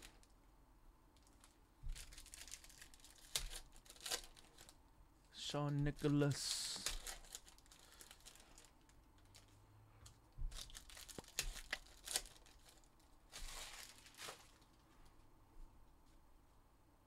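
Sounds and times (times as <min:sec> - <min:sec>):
foil wrappers crinkling: 0:00.0 - 0:00.3, 0:01.2 - 0:04.8, 0:05.9 - 0:09.5, 0:10.4 - 0:14.9.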